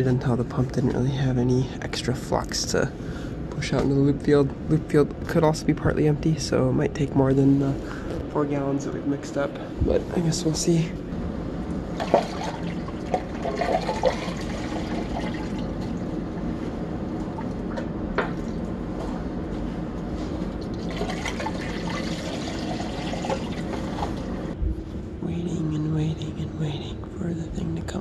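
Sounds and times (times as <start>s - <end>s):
liquid pouring through funnel: 12.0s - 16.0s, 20.7s - 24.5s.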